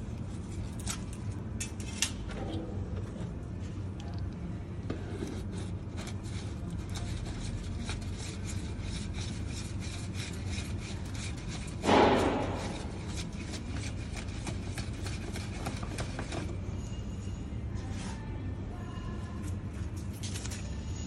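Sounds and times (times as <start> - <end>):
oil filter canister scraping: 4.9 - 16.6.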